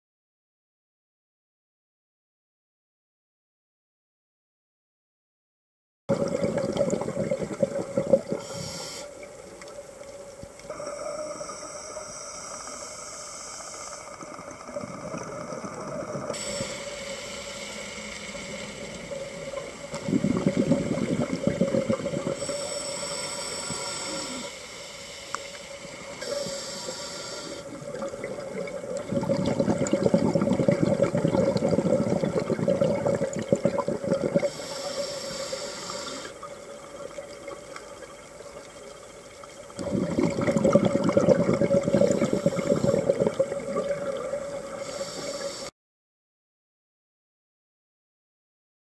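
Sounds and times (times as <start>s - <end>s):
bubbling exhales underwater: 6.1s - 8.9s, 14.2s - 24.5s, 27.6s - 38.6s, 39.7s - 45.6s
steady hum: 6.1s - 36.8s
hissing inhales through regulator: 8.1s - 9.4s, 10.7s - 28.2s, 29.0s - 36.6s, 39.8s - 43.7s, 44.4s - 45.7s.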